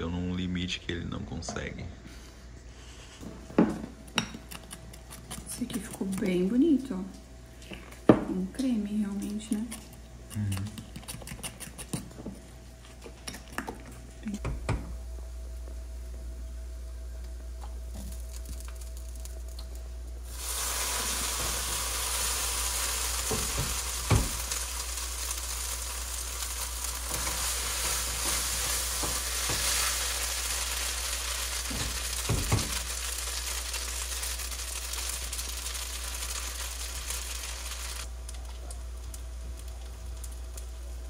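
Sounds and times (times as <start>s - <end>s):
food sizzling in a wok: 17.8s - 41.0s.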